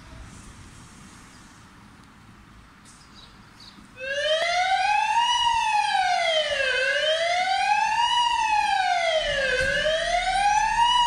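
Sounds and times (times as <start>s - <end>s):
quiet street sound: 0.0s - 11.0s
fire engine siren wailing: 4.0s - 11.0s.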